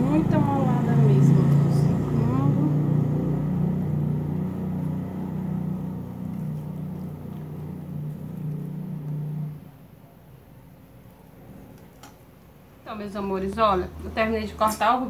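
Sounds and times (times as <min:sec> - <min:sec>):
motor humming: 0:01.4 - 0:09.8.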